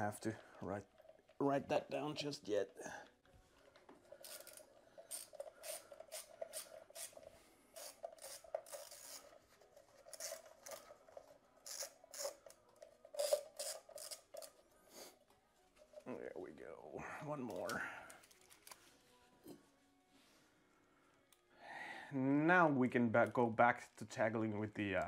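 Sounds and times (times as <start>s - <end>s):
socket ratchet clicking: 4.2s - 7.2s, 7.8s - 9.3s, 11.6s - 12.6s, 13.2s - 14.5s.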